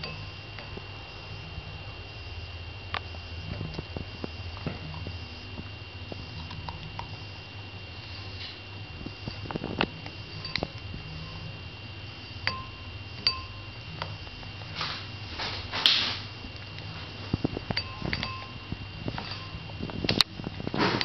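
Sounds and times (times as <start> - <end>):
beak tapping ceramic bowl: 12.5 - 13.7, 17.7 - 18.6.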